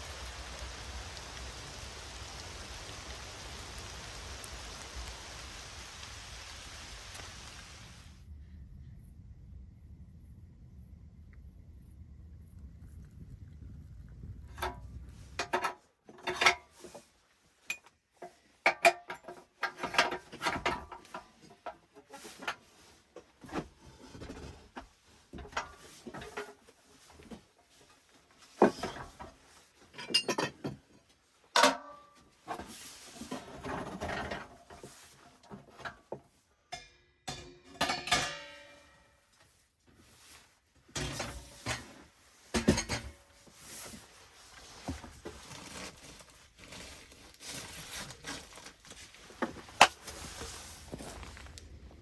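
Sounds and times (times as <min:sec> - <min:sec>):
low steady rumble: 0:07.5 - 0:15.4.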